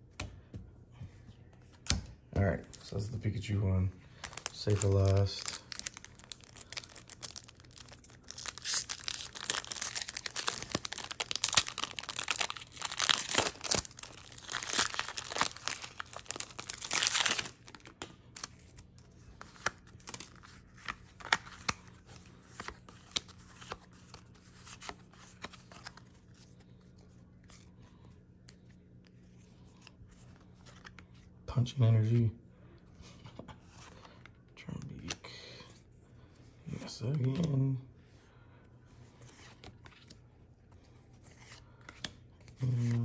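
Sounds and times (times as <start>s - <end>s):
trading cards rustling: 2.6s - 27.8s
foil wrapper tearing and crinkling: 4.3s - 18.6s.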